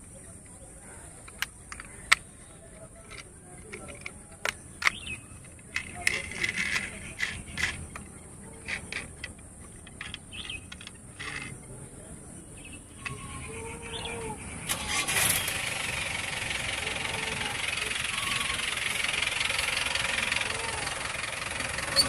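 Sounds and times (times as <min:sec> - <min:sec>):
toy truck clicks and taps: 0:01.2 - 0:11.6, 0:16.4 - 0:21.2.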